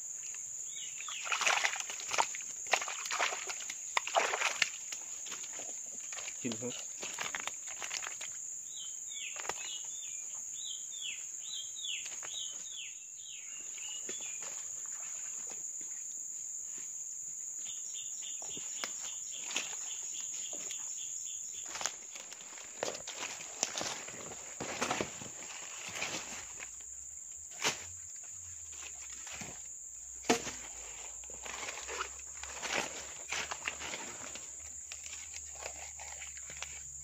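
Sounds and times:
insects droning: 0.0s - 37.0s
rustles and knocks of net handling: 1.2s - 8.4s, 21.6s - 26.8s, 27.5s - 36.8s.

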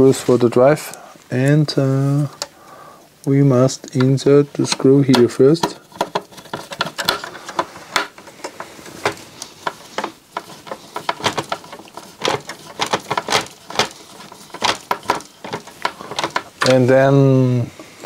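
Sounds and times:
fingers clicking and tapping parts: 3.2s - 16.9s.

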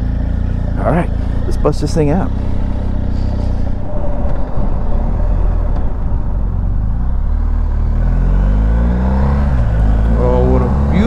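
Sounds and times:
motorcycle engine running: 0.0s - 3.8s
wind buffeting microphone: 1.4s - 10.1s.

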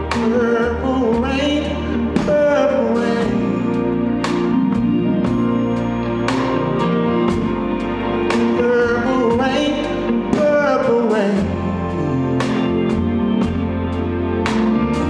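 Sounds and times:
man singing: 0.0s - 4.1s, 8.6s - 13.2s
keyboard chords: 0.0s - 15.0s.

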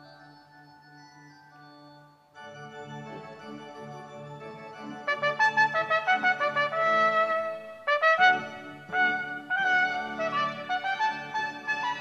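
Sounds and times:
brass melody: 2.6s - 12.0s.

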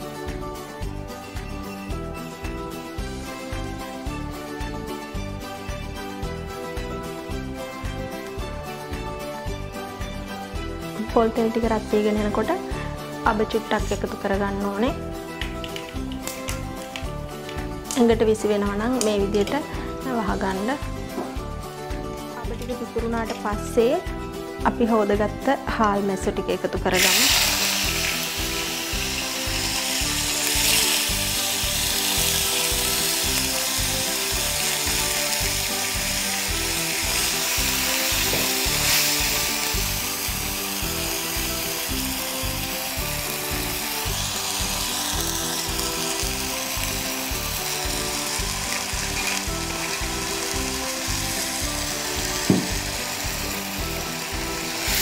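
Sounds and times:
background music with steady beat: 0.0s - 55.0s
fish sizzling in hot oil: 27.0s - 55.0s.

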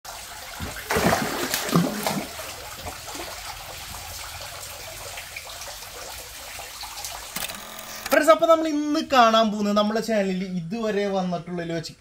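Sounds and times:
water trickling into fish tank: 0.1s - 7.8s.

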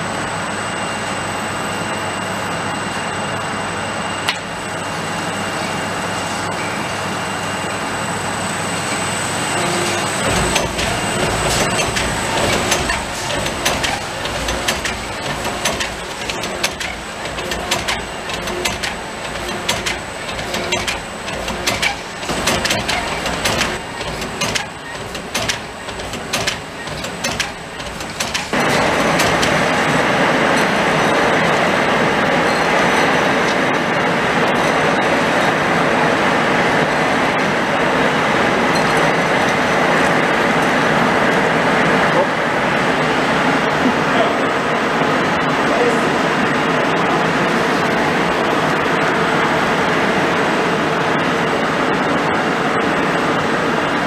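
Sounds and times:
packaging machinery clattering: 8.9s - 41.5s.

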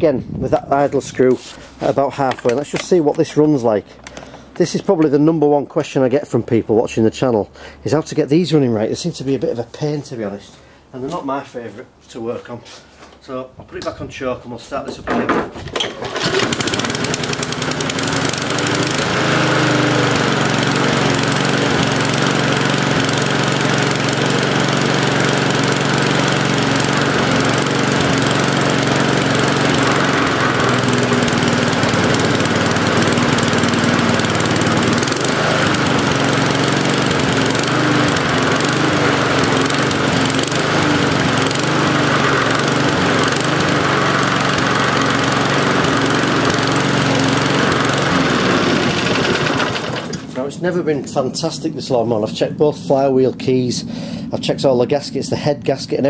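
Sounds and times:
lawnmower engine revving: 15.8s - 54.7s.

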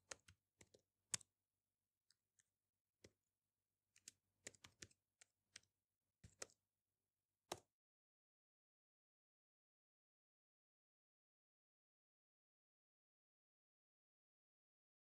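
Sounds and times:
laptop keyboard keystrokes: 0.0s - 1.3s, 4.0s - 6.6s.

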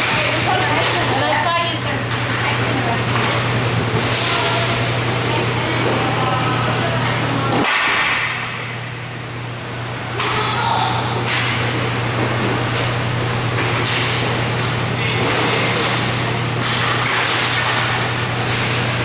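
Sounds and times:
sticks and puck cracking: 16.6s - 18.8s.

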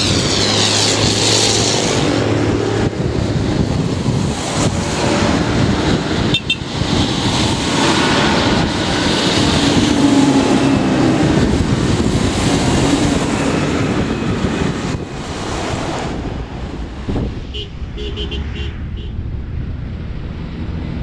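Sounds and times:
tractors driving past: 0.0s - 21.0s.

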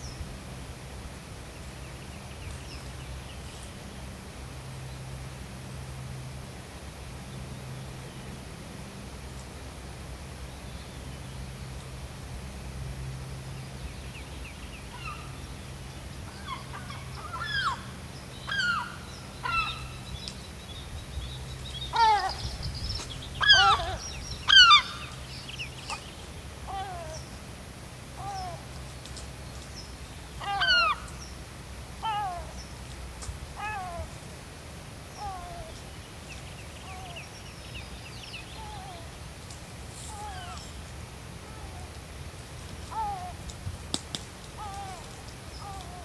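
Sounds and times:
low steady hum: 0.0s - 46.0s
gulls calling: 16.3s - 20.1s, 21.7s - 27.4s, 28.1s - 28.8s, 30.3s - 31.3s, 32.0s - 32.6s, 40.0s - 40.8s, 42.9s - 43.4s, 44.6s - 46.0s.

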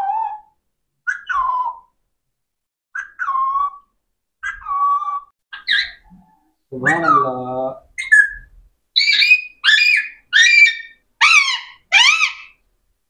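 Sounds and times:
parakeet whistled calls: 8.0s - 12.6s.

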